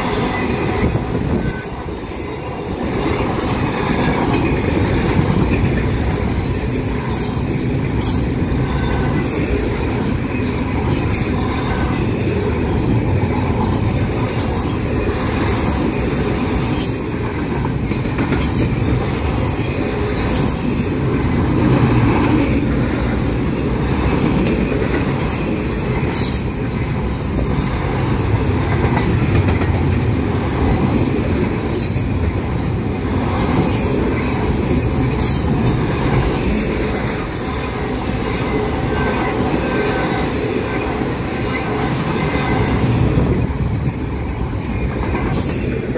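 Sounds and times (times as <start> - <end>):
steel wheels rumbling on rail: 0.0 - 45.9
sharp high clicks from train cars: 16.4 - 22.5, 27.6 - 32.5.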